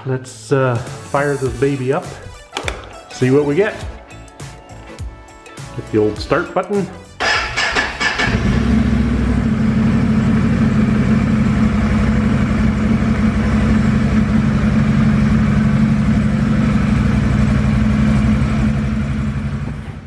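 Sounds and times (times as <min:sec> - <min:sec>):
engine idling: 0:07.2 - 0:20.0.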